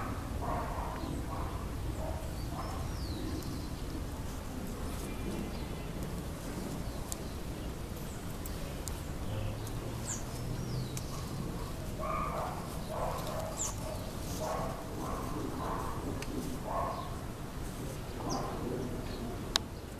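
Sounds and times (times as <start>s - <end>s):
dog barking: 0.0s - 2.9s, 11.1s - 17.2s.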